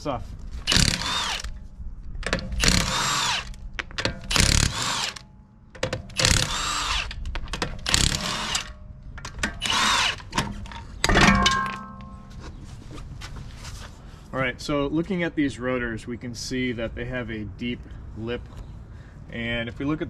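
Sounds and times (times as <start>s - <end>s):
impact wrench bursts: 0.6s - 1.6s, 2.5s - 5.2s, 5.8s - 7.2s, 7.8s - 8.8s, 9.5s - 10.4s.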